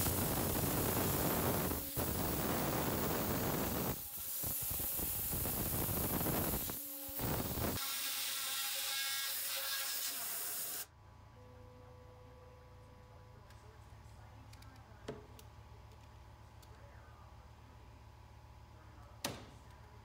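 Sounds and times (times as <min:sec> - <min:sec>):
router spindle milling hiss: 0:00.0 - 0:07.8
quiet low hum: 0:10.9 - 0:20.0.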